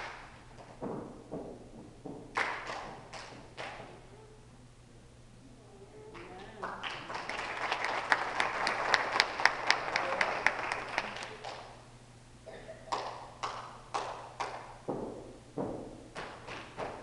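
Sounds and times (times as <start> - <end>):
rhythmic hand clapping: 2.2 - 4.0, 6.1 - 11.8, 12.8 - 14.9, 15.6 - 17.0
applause: 2.4 - 3.8, 6.2 - 11.8, 12.9 - 14.7.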